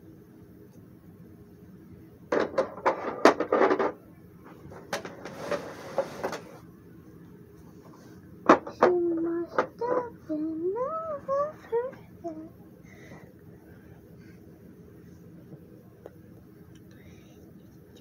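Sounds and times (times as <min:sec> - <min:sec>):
toy furniture clattering: 0:02.3 - 0:04.0, 0:04.7 - 0:06.6.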